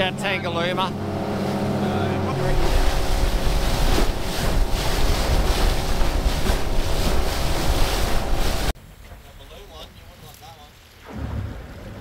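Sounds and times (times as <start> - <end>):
low boat motor rumble: 0.0 - 8.8
water rushing past boat hull: 0.0 - 12.0
wind buffeting microphone: 1.0 - 8.8.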